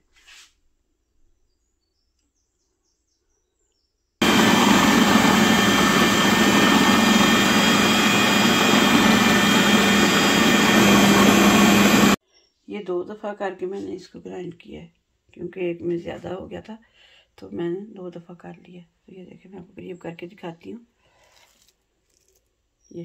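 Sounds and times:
food processor motor running: 0:04.2 - 0:12.2.

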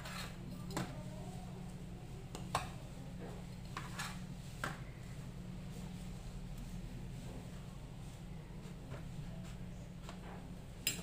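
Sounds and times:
metal spatula scraping baking tray: 0:00.0 - 0:00.4, 0:03.7 - 0:04.2
low steady hum: 0:00.0 - 0:11.0.

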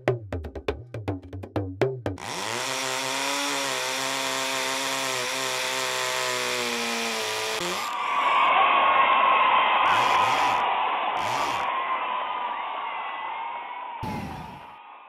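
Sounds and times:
buzzing power tool sound: 0:02.2 - 0:08.0, 0:09.9 - 0:11.7.

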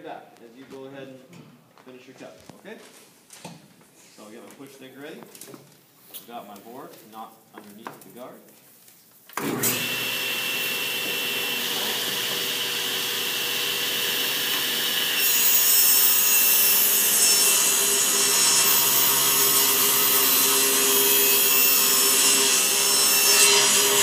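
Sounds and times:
table saw whining and cutting: 0:09.4 - 0:24.0.

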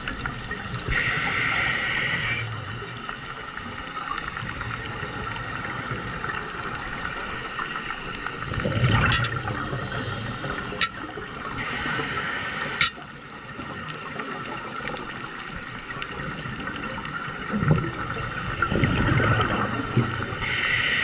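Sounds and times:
hissing regulator inhale: 0:00.9 - 0:02.6, 0:11.6 - 0:13.0, 0:13.9 - 0:15.6, 0:19.8 - 0:21.0
rumbling exhaled bubbles: 0:08.4 - 0:11.5, 0:16.0 - 0:20.4.

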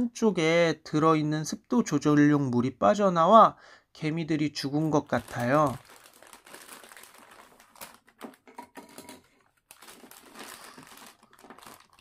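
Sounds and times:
plastic packaging rustling: 0:04.7 - 0:12.0.

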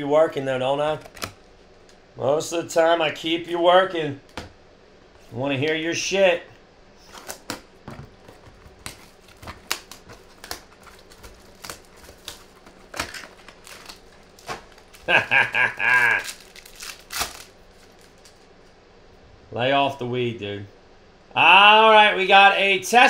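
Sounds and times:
plastic wrapper tearing and crumpling: 0:08.7 - 0:18.5
man's voice: 0:21.3 - 0:23.0.

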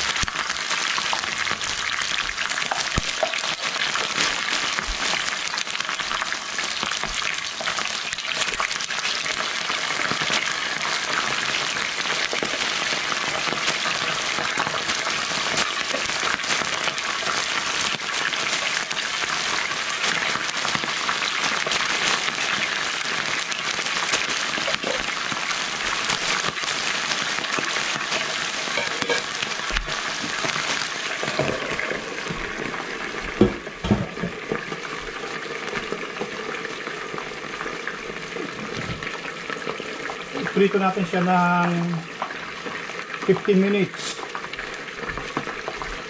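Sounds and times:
deep-frying sizzle and crackle: 0:00.0 - 0:46.0
glass lid knocking on pan: 0:28.7 - 0:29.4, 0:33.4 - 0:34.4.

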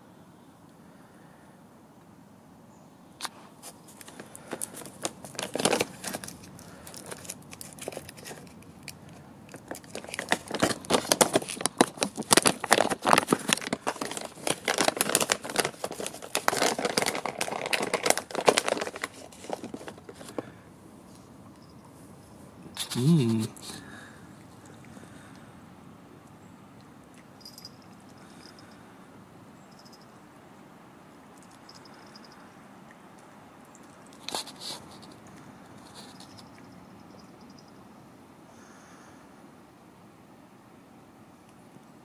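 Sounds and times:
treat pouch crinkling: 0:03.6 - 0:20.5.

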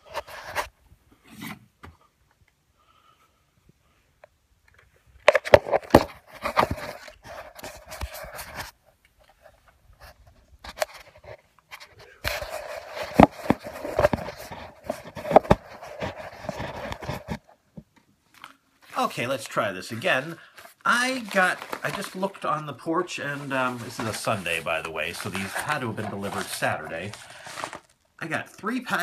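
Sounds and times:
fingers handling phone microphone: 0:04.7 - 0:18.6.

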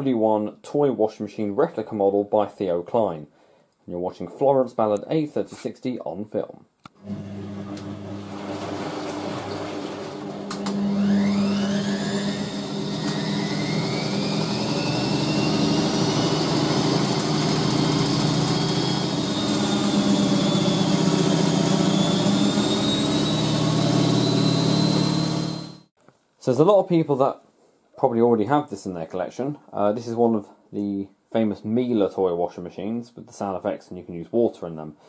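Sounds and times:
washing machine spin cycle: 0:07.1 - 0:25.8
motor whine: 0:07.1 - 0:25.9.

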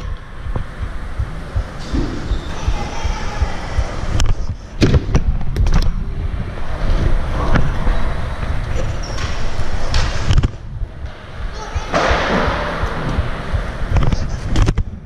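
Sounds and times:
wind rumble on microphone: 0:00.0 - 0:15.0
bike knocks and clatters: 0:01.6 - 0:02.9, 0:04.2 - 0:06.0, 0:08.7 - 0:15.0.

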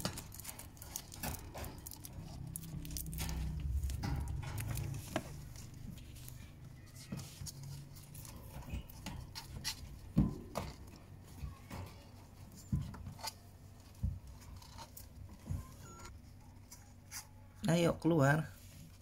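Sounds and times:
wire cage clicks and knocks: 0:00.0 - 0:05.8.

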